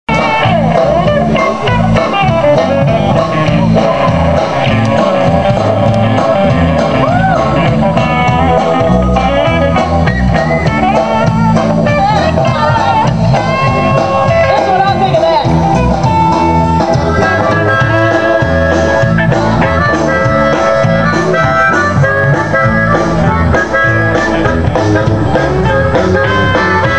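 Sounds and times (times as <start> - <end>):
live blues-rock band: 0.1 - 26.9
person singing: 10.9 - 21.6.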